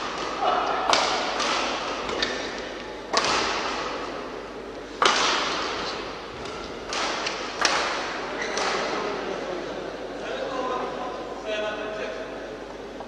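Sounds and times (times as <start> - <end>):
rackets striking shuttlecock: 0.0 - 9.0.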